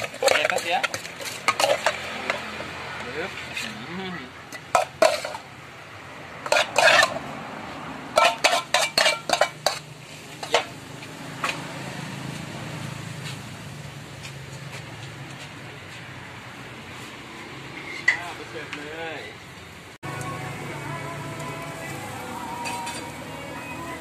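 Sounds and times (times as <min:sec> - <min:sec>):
spoon and dishes clinking: 0:00.0 - 0:02.4, 0:04.5 - 0:05.4, 0:06.5 - 0:07.2, 0:08.2 - 0:10.8, 0:22.6 - 0:23.2.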